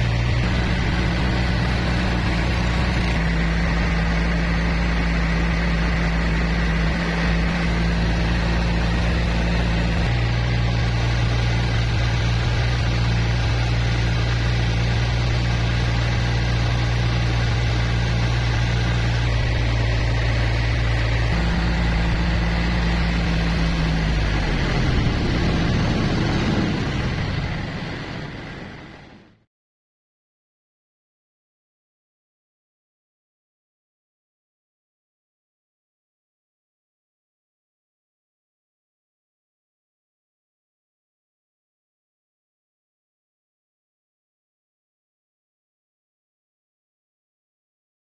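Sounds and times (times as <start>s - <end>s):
water and wind wash: 0.0s - 5.3s, 17.7s - 29.4s
boat engine humming: 0.0s - 29.4s.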